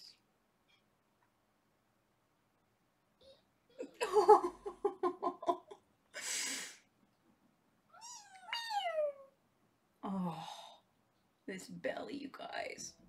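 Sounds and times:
woman giggling: 3.8 - 5.8
kitten meowing: 8.0 - 9.3.

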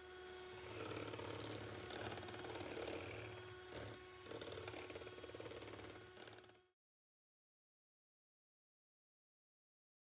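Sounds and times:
electric hand mixer whisking batter: 0.0 - 6.7.

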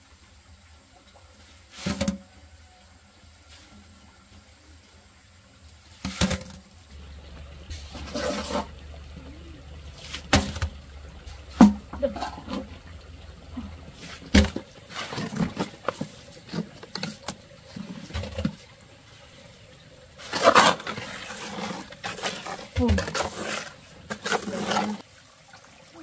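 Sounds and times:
water splashing: 5.8 - 26.0
low steady rumble: 6.6 - 22.2.

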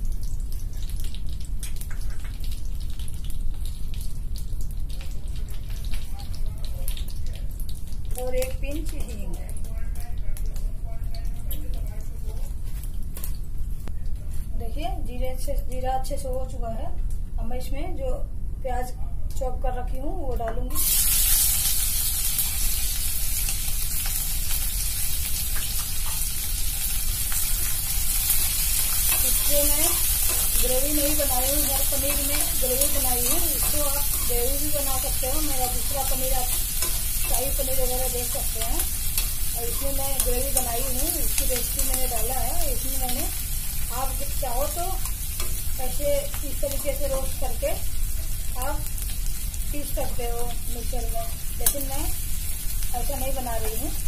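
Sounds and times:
seeds crackling in hot oil: 0.0 - 17.2, 20.0 - 54.0
metal spoon clicking on pan: 28.8 - 42.3, 51.6 - 51.9.

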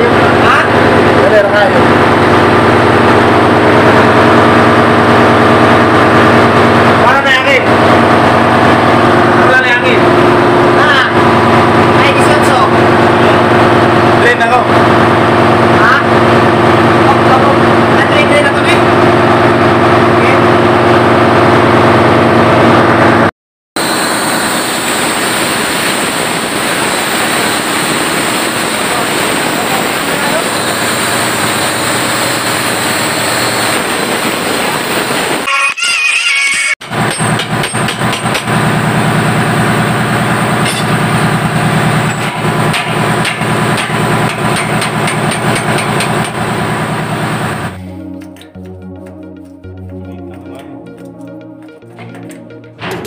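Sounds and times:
engine-room machinery drone: 0.0 - 53.0
background music: 47.8 - 53.0.

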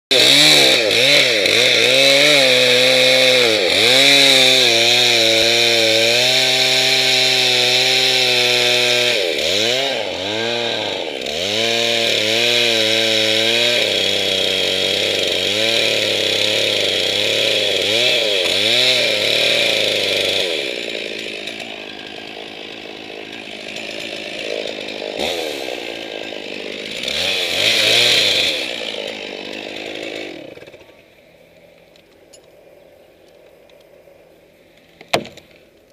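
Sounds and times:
chainsaw cutting wood: 0.1 - 32.7, 33.4 - 35.9.

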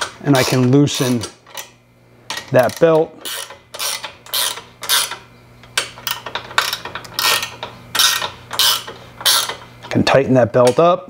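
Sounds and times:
ratchet wrench clicking: 0.0 - 1.7, 2.3 - 5.2, 5.8 - 9.6.

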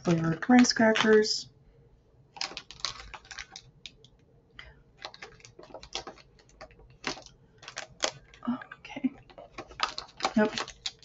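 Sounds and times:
plastic wrappers crinkling: 2.4 - 11.0.

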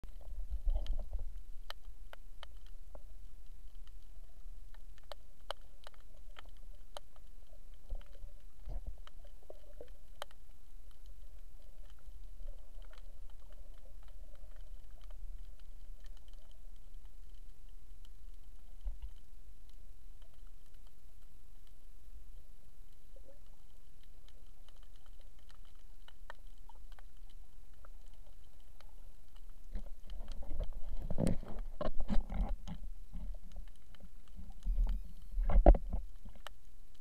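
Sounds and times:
underwater rumble of moving water: 0.0 - 37.0
sharp clicks and crackles: 0.1 - 21.9, 22.9 - 37.0.

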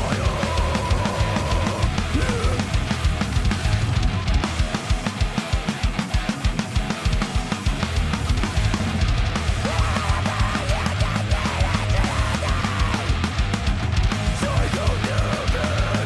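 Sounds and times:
bass guitar: 0.0 - 16.0
distorted electric guitars: 0.0 - 16.0
drums: 0.0 - 16.0
fast bass drum beats: 0.0 - 16.0.

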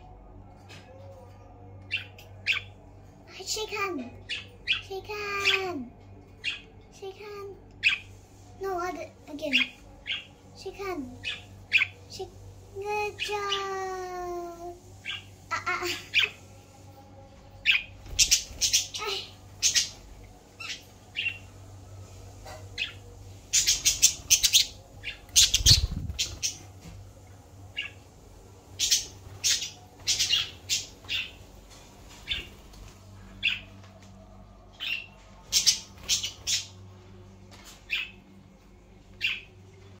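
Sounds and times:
budgerigars chirping and squawking: 9.4 - 13.7, 17.6 - 21.5, 22.1 - 26.7, 28.7 - 31.5, 34.8 - 36.7.

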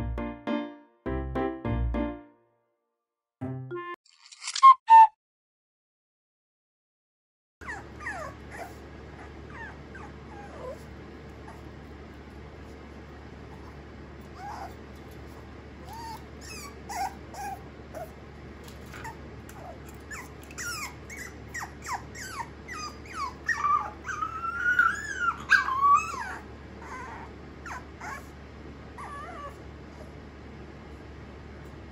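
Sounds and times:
puppy whining: 7.6 - 11.8, 13.5 - 18.2, 18.8 - 30.2.

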